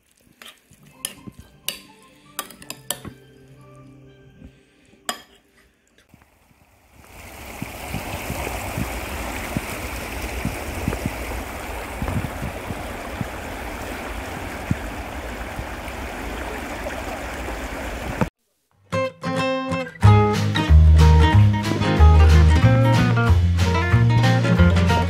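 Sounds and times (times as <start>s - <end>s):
metal spoon clinking ceramic bowl: 1.0s - 3.3s, 5.1s - 5.4s
stream flowing over rocks: 6.2s - 18.3s.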